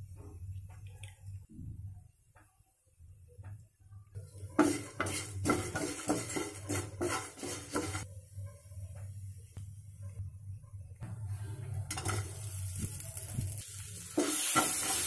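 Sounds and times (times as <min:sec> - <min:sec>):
dry food scraping in a frying pan: 0:04.6 - 0:08.1, 0:11.9 - 0:15.0.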